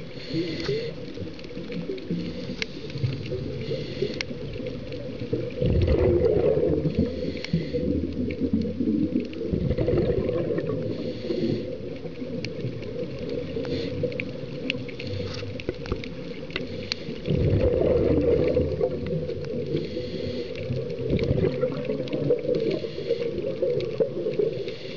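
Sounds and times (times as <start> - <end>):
hissing regulator inhalations: 0.0 - 1.2, 2.0 - 4.7, 6.9 - 8.4, 10.7 - 12.1, 13.3 - 15.7, 16.5 - 17.3, 19.5 - 21.0, 22.4 - 24.9
bubbling exhaled air underwater: 0.0 - 24.9
faint clicks: 0.0 - 24.9.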